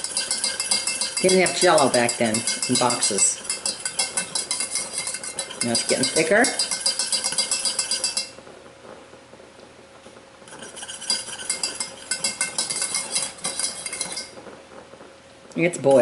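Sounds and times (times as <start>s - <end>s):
spoon scraping metal saucepan: 0.0s - 8.4s, 10.5s - 14.4s.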